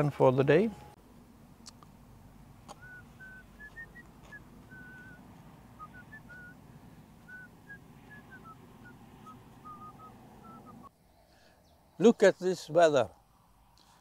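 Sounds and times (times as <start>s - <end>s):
soft whistling tune: 2.8s - 5.2s, 5.8s - 6.6s, 7.2s - 10.9s.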